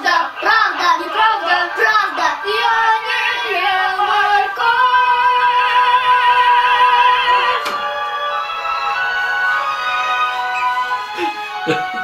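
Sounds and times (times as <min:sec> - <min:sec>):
girl singing mock-opera: 0:00.0 - 0:07.6.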